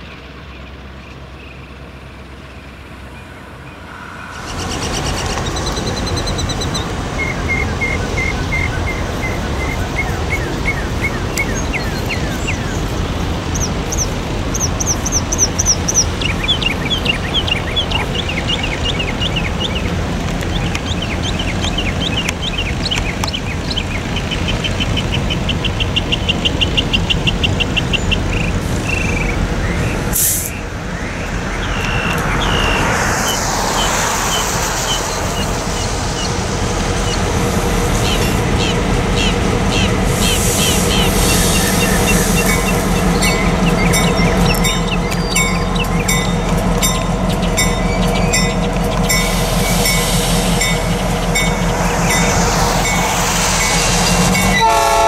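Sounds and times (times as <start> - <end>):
diesel locomotive rumble: 0.0 - 55.0
birds chirping in trills: 2.5 - 55.0
locomotive air hiss: 28.5 - 45.0, 46.0 - 55.0.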